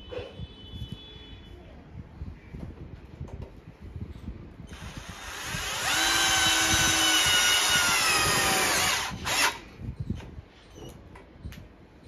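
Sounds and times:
cordless drill whining: 4.7s - 9.6s.

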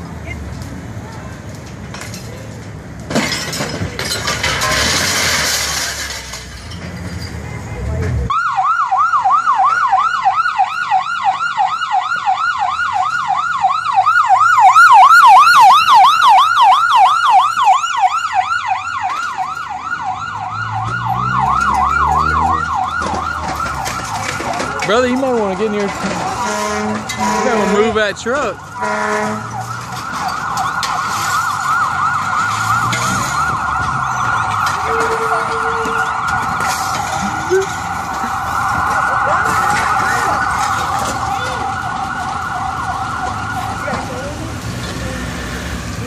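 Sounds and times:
emergency siren yelping: 8.3s - 44.5s.

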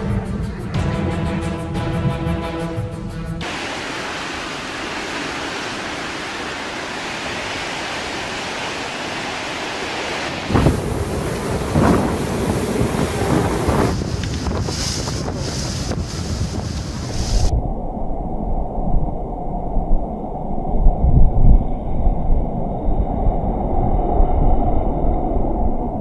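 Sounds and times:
waves washing: 0.0s - 20.6s
storm wind: 0.0s - 26.0s
water spray: 3.4s - 17.5s
wind buffeting microphone: 10.1s - 26.0s.

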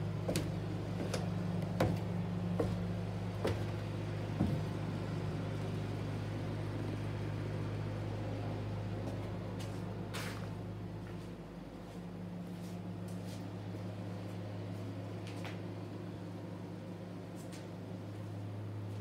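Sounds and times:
low machine hum: 0.0s - 19.0s
short knocks: 0.3s - 2.8s.

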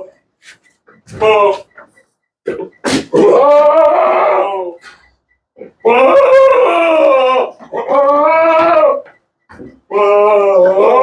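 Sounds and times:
goat bleating: 2.5s - 4.7s, 5.6s - 9.2s.

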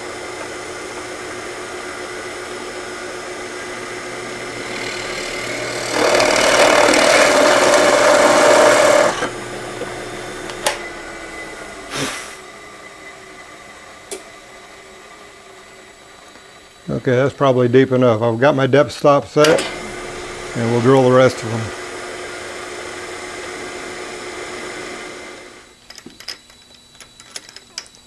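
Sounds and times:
motor winding down: 0.0s - 14.2s, 19.4s - 25.7s
drill press motor running: 0.0s - 16.8s, 19.4s - 25.7s
drill bit boring into plywood: 0.1s - 12.2s.

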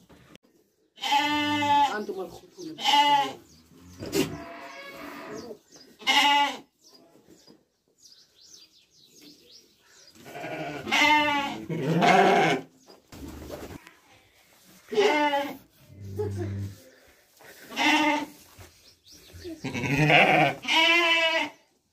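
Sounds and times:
sheep bleating: 1.0s - 2.0s, 2.8s - 3.4s, 6.0s - 6.7s, 10.2s - 12.7s, 14.9s - 15.6s, 17.7s - 18.4s, 19.6s - 21.6s.

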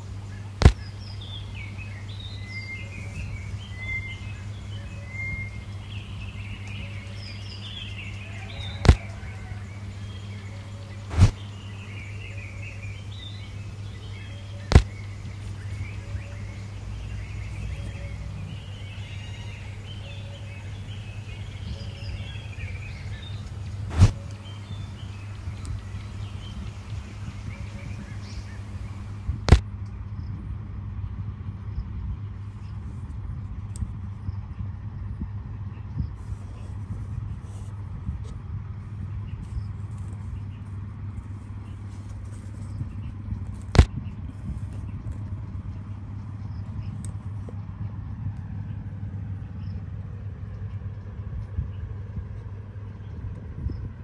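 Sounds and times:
birds chirping: 0.0s - 29.6s
steady low hum: 0.0s - 54.0s.

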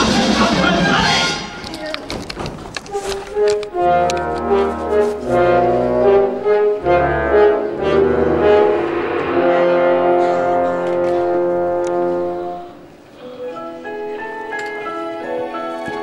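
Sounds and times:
orchestra playing brass chords: 3.8s - 13.0s.

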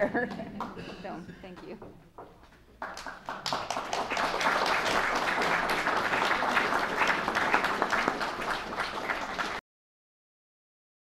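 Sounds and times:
audience applauding: 2.8s - 9.6s.

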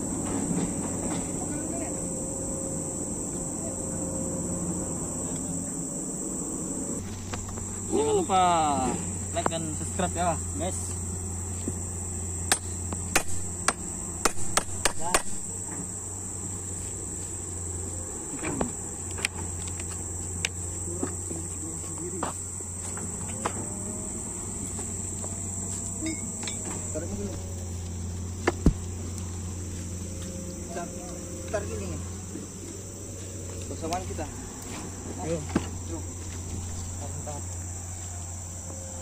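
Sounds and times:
high insect chorus: 0.0s - 39.0s
low steady hum: 0.0s - 39.0s.

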